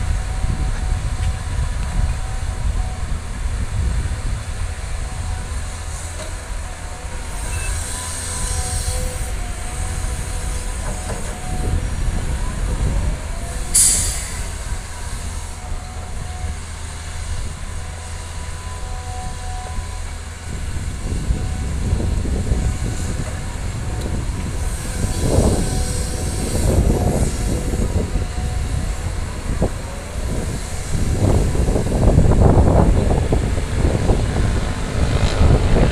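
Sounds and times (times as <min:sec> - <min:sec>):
excavator diesel engines rumbling: 0:00.0 - 0:35.9.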